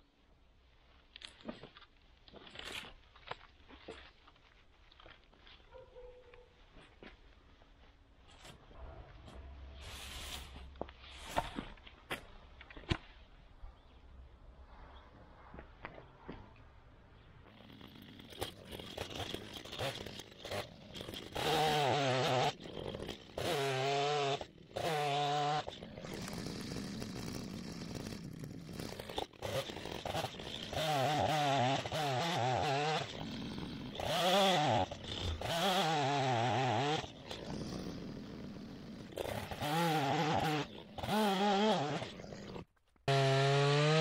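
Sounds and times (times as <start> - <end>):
chainsaw cutting logs: 17.5 - 44.0
chainsaw idling: 17.5 - 44.0.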